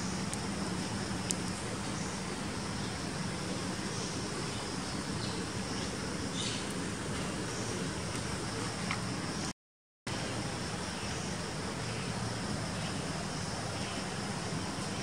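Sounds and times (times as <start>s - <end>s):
faint ticks and rustles: 0.2s - 2.2s, 6.6s - 9.2s.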